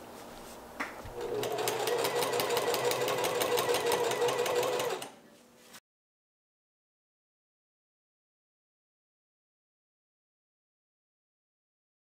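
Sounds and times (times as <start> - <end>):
sewing machine stitching: 1.2 - 5.2.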